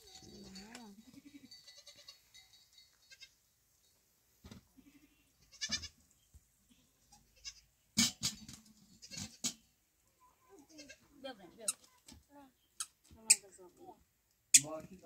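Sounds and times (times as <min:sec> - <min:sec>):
livestock bleating: 0:01.0 - 0:02.2, 0:04.8 - 0:06.0, 0:06.7 - 0:07.7, 0:10.4 - 0:11.1.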